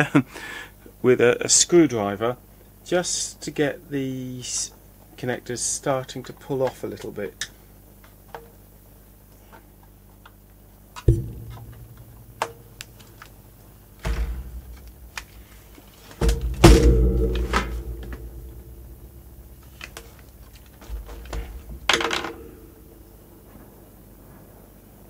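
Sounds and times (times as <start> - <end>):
heavier thuds on casing: 11.0 - 23.6.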